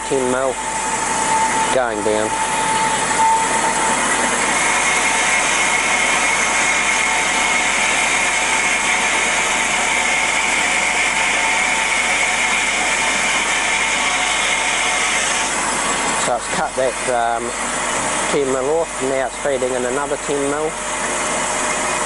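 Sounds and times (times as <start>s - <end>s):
high steady tone: 0.0s - 8.7s
bandsaw running: 1.5s - 20.8s.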